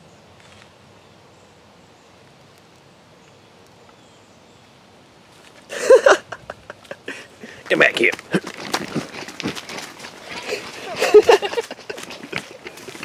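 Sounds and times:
faint outdoor ambience: 0:00.0 - 0:13.0.

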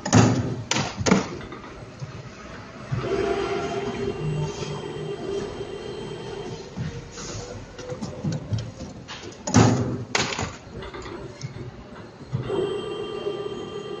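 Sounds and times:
machine whine: 0:02.8 - 0:07.6, 0:11.8 - 0:14.0
spring coiling machine humming: 0:10.7 - 0:14.0.

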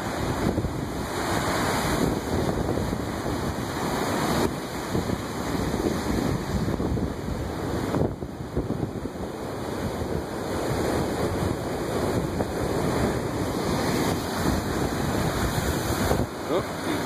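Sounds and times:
surf breaking over rocks: 0:00.0 - 0:17.0
wind buffeting microphone: 0:00.0 - 0:17.0.

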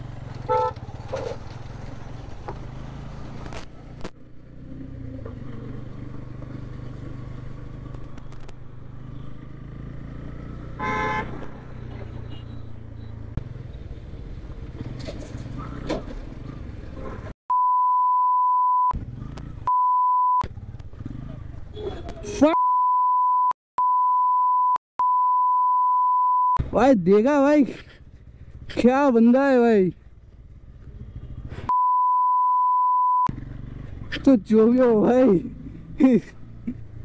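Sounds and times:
motorcycle engine running: 0:00.0 - 0:13.7, 0:27.7 - 0:31.7
road noise: 0:00.0 - 0:17.4, 0:18.5 - 0:22.6, 0:26.2 - 0:37.0
horn honking: 0:00.4 - 0:00.8, 0:10.7 - 0:12.8
censor bleep: 0:17.5 - 0:19.0, 0:19.7 - 0:20.4, 0:22.6 - 0:26.6, 0:31.7 - 0:33.3.

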